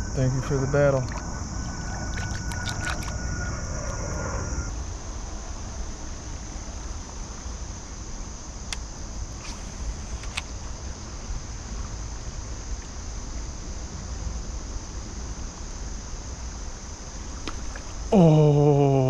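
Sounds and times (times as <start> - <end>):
wind rumbling on microphone: 0.0 - 18.1
insects droning: 0.0 - 19.0.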